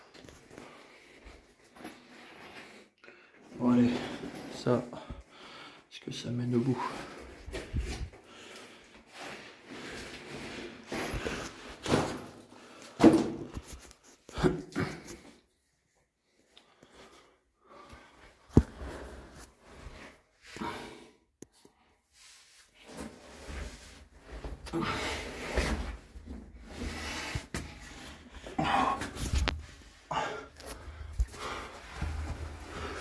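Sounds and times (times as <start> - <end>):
person breathing hard: 5.0 - 5.9, 24.6 - 33.0.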